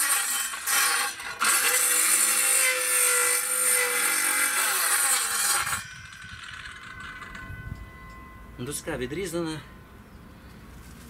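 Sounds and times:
circular saw cutting wood: 0:00.0 - 0:08.3.

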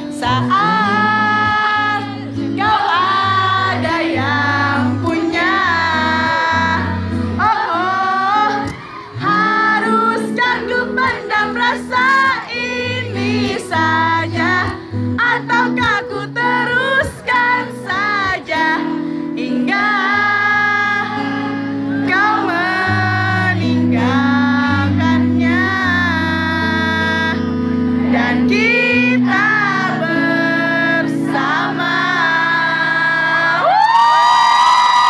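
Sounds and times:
bass notes: 0:00.0 - 0:12.0
person singing: 0:00.0 - 0:34.0
guitar: 0:00.0 - 0:35.0.

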